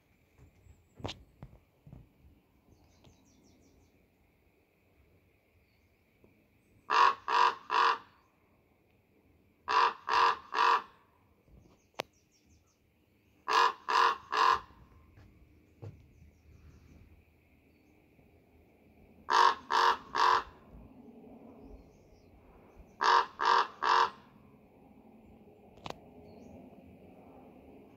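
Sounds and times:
raven calling: 6.9 - 8.3, 9.7 - 11.1, 13.4 - 15.0, 19.3 - 20.8, 22.7 - 24.4.

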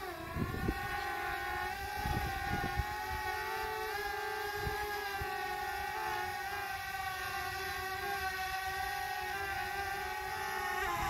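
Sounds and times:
wind on microphone: 0.0 - 5.8, 10.1 - 11.0
drone propellers whining: 0.0 - 11.0.

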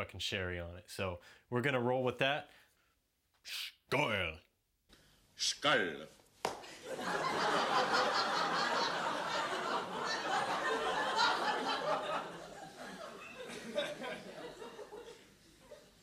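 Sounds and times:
audience laughing: 6.7 - 16.0.

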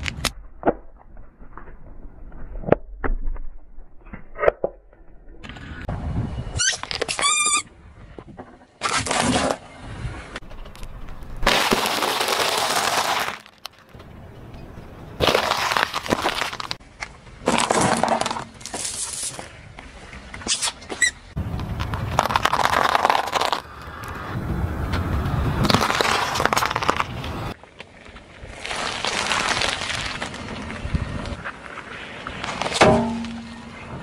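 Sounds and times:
tyre crushing objects crackling: 10.8 - 14.0, 15.2 - 16.8, 17.4 - 19.0, 21.4 - 23.7, 25.5 - 27.6, 28.5 - 31.4, 32.4 - 33.5
pods popping under tyre: 20.4 - 27.9.

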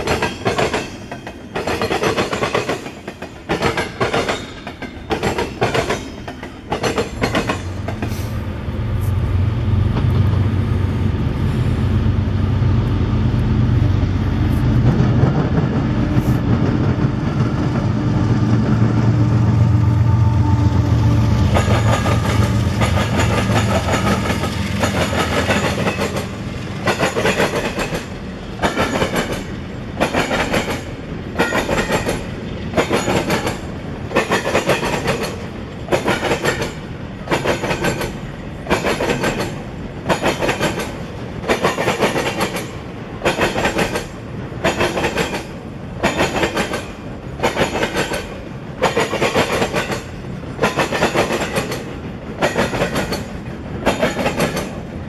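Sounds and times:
train wheels clattering: 0.0 - 8.4, 21.4 - 55.0
diesel locomotive droning: 3.4 - 41.6.

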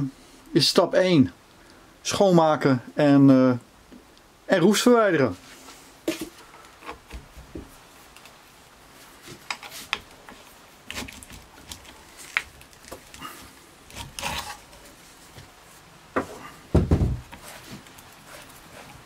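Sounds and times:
drill thudding on workbench: 16.7 - 17.3.

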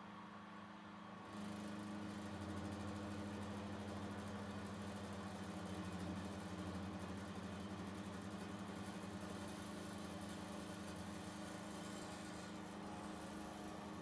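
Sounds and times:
milling machine cutting metal: 10.4 - 14.0.

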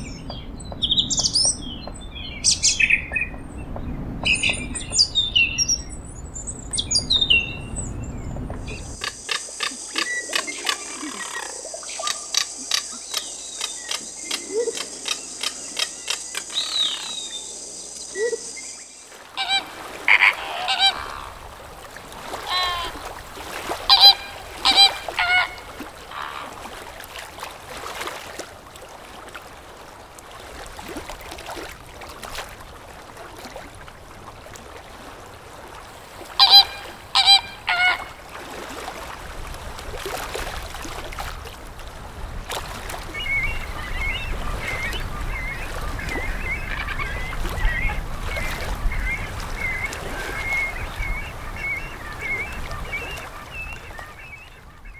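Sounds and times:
flamingos honking: 8.7 - 17.4, 18.1 - 26.7, 36.3 - 38.3
chatter of flamingo calls: 9.0 - 17.1, 19.3 - 21.5, 22.3 - 23.1, 23.8 - 26.6, 36.4 - 38.2.

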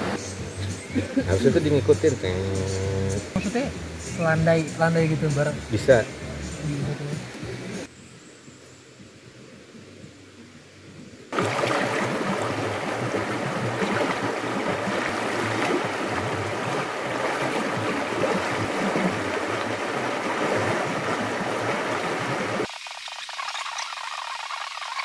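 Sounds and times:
stream rushing over stones: 11.3 - 22.7.

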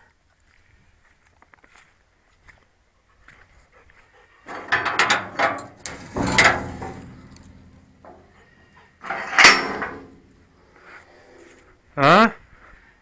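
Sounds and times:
metal door squeaks and clanks: 4.5 - 10.3.

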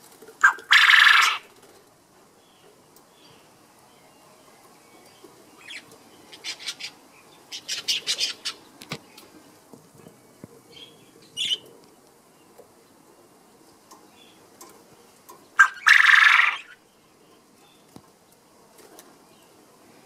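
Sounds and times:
quail crowing: 0.4 - 1.5, 15.6 - 16.8.

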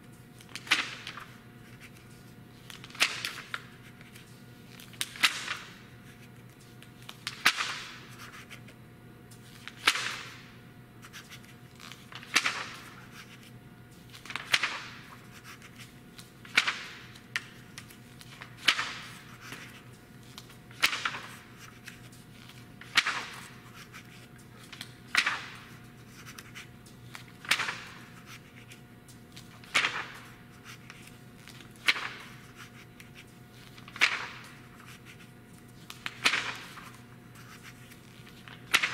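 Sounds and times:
faint steady hum: 0.0 - 38.9
magazine pages turning: 14.1 - 38.9.

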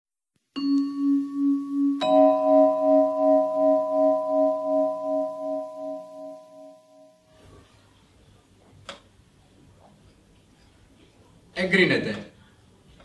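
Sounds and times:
bell-like metal chime tones: 0.6 - 7.2.

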